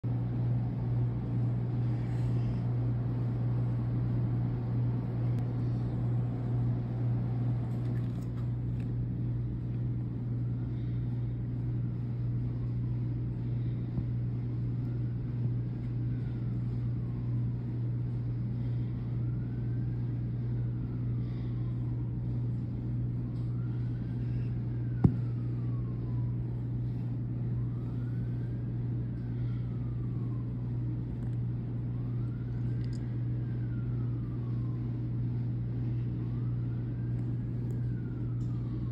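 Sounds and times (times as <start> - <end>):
steady low hum: 0.0 - 38.9
faint siren wailing: 0.1 - 38.9.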